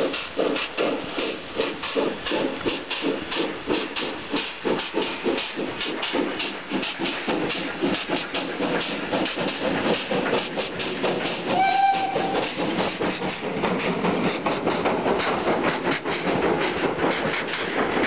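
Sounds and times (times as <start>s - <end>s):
coach wheels clattering: 0.0s - 18.0s
steam locomotive exhaust beating: 0.0s - 18.0s
steam whistle blast: 11.5s - 12.4s.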